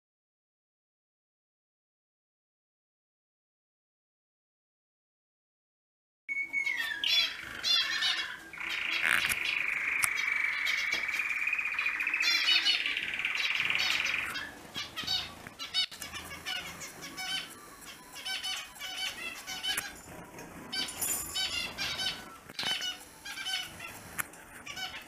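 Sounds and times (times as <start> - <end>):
finches chirping: 6.3 - 25.0.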